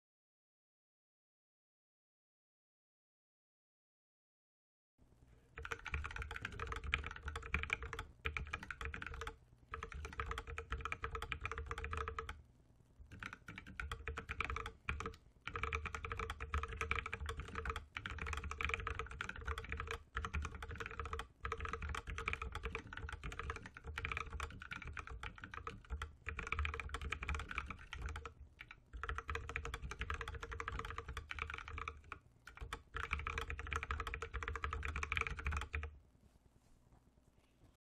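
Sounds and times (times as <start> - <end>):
fast typing on mechanical keyboard: 5.6 - 12.4, 13.1 - 35.9.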